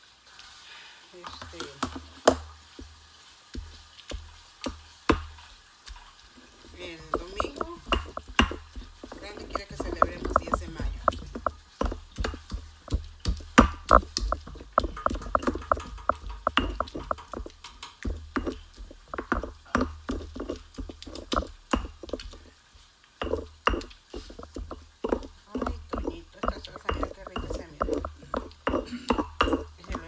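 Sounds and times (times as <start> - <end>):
stone pestle grinding in mortar: 6.7 - 22.6, 23.2 - 30.0.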